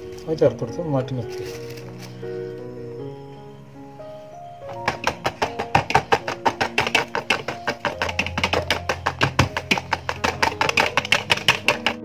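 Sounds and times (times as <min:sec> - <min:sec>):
background music: 0:00.0 - 0:12.0
whisk clicking against bowl: 0:04.9 - 0:12.0.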